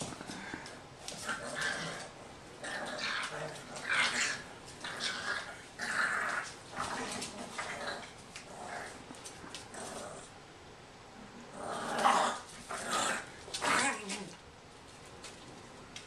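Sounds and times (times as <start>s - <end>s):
dogs vocalizing in play: 0.3s - 10.3s.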